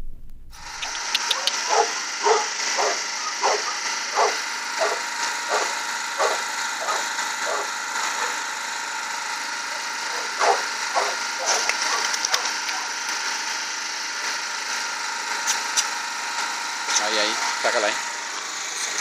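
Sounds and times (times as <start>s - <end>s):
high-pitched background drone: 0.6s - 14.4s
dog barking: 0.8s - 8.4s, 10.1s - 12.9s.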